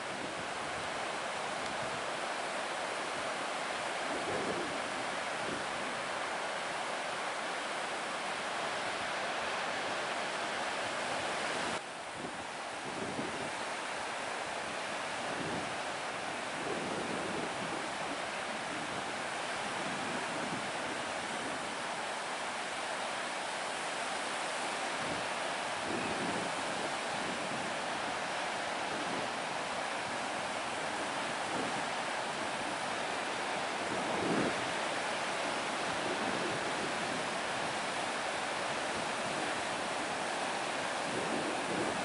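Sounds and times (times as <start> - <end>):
wind rumbling on microphone: 0.0 - 2.3, 3.1 - 6.2, 11.0 - 13.8, 15.1 - 21.9, 24.9 - 42.0
ocean surf breaking: 12.9 - 42.0.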